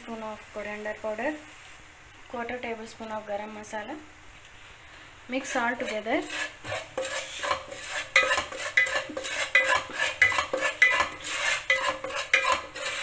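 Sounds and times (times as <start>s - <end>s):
wooden spatula scraping a pan: 5.3s - 13.0s.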